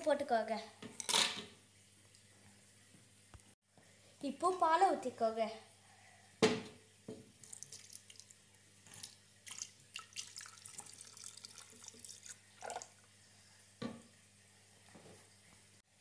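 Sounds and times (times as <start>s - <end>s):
milk trickling and splashing: 7.3s - 13.4s.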